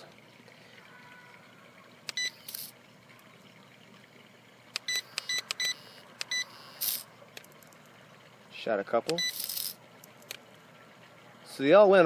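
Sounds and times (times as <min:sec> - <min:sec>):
high electronic beeps: 0:09.2 - 0:09.7.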